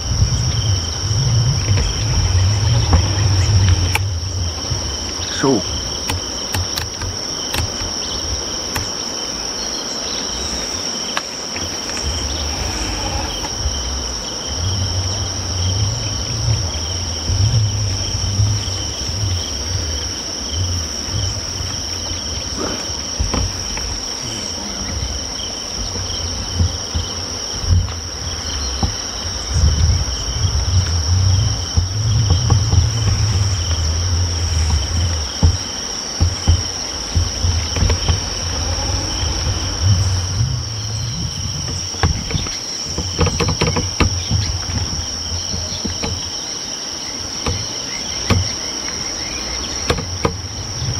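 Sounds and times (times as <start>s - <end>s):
low rumble: 0.0s - 8.7s, 11.7s - 43.2s
insects trilling: 0.0s - 50.9s.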